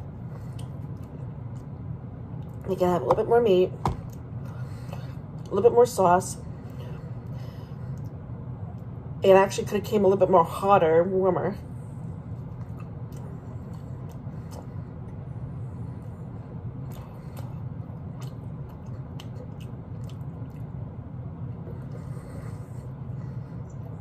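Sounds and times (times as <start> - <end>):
low hum: 0.0 - 24.0
person chewing meat: 12.3 - 15.3, 16.6 - 24.0
teeth and mouth clicks: 16.9 - 20.8.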